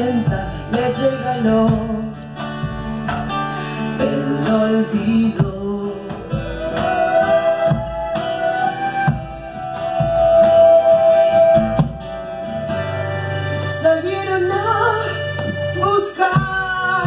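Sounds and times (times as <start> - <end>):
drum beats: 0.0 - 13.5, 15.3 - 17.0
strummed acoustic guitar: 0.0 - 17.0
long held sliding melody note: 6.5 - 17.0.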